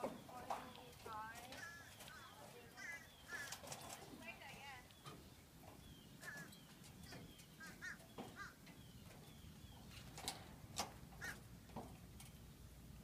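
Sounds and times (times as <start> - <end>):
faint calls and chirps: 0.0 - 10.1.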